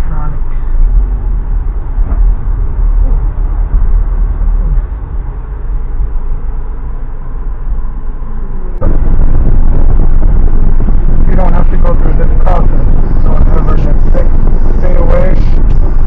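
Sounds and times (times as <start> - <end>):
car engine and road rumble: 0.0 - 16.0.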